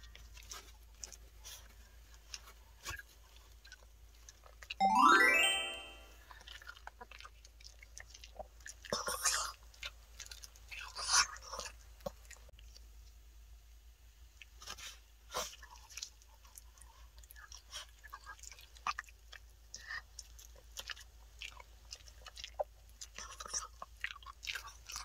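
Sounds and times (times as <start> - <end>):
dog crunching a treat: 6.4 - 12.8, 17.2 - 25.0.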